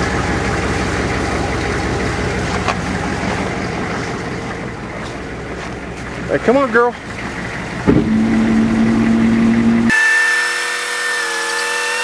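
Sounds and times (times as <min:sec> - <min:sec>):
tow truck engine droning: 0:00.0 - 0:10.4.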